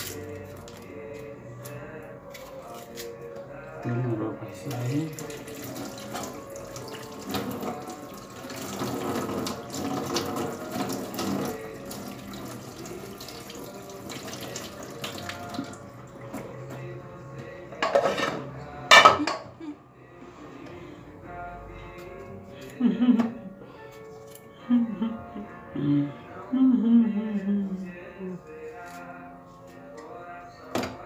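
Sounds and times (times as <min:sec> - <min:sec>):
tap water running into sink: 0:04.9 - 0:16.5
dishes clinking: 0:17.8 - 0:19.6.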